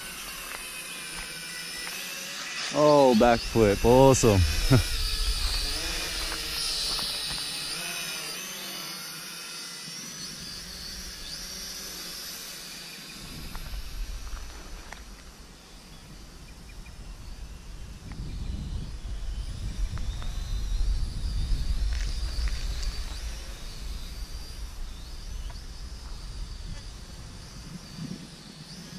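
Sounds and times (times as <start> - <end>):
toy drone motors whining: 0.0 - 28.9
wind rumble on microphone: 3.3 - 7.5, 16.0 - 28.9.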